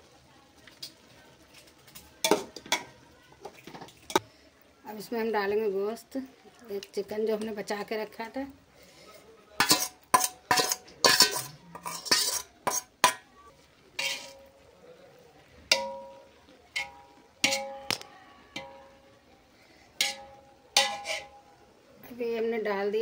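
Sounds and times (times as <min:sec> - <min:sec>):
metal spoon scraping a pot: 0:09.6 - 0:13.2, 0:14.0 - 0:14.6, 0:16.7 - 0:18.0, 0:20.0 - 0:21.5
pot ringing: 0:15.7 - 0:19.1, 0:20.0 - 0:21.5.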